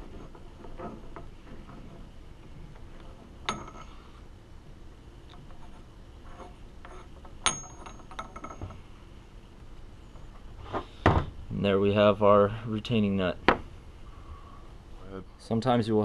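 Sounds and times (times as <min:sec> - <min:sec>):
steel parts clinking: 0:06.8 - 0:08.8.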